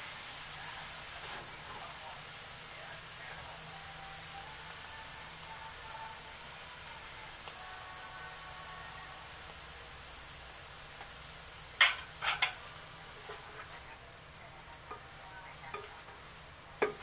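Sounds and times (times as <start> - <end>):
faint sizzle: 0.0 - 17.0
spatula stirring in pan: 9.4 - 17.0
spatula clacking against pan: 16.8 - 17.0.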